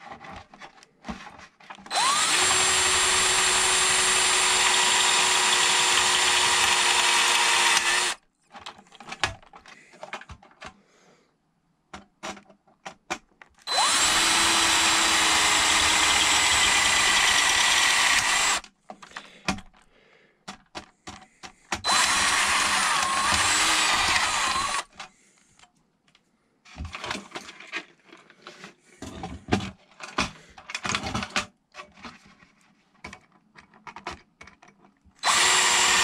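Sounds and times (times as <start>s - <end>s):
cordless drill running: 1.9s - 8.2s, 13.7s - 18.6s, 21.8s - 24.9s, 35.2s - 36.0s.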